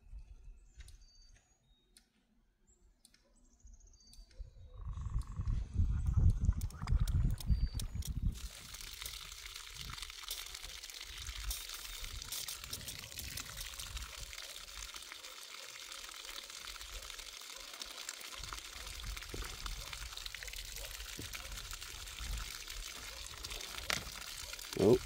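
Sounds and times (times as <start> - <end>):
water pouring from sluice box: 8.0 - 25.0.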